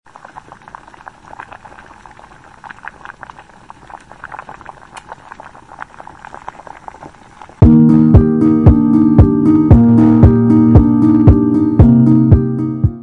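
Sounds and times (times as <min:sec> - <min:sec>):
water boiling: 0:00.1 - 0:10.3.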